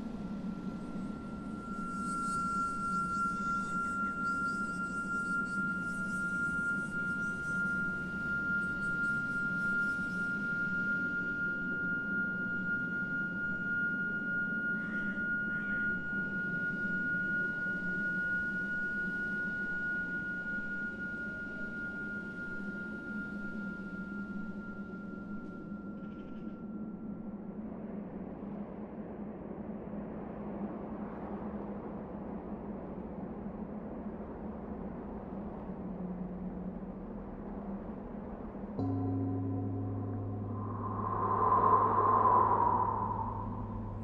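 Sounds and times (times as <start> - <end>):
low drone: 36.3 - 44.0
high pure tone: 38.8 - 44.0
brief soft sounds: 40.3 - 44.0.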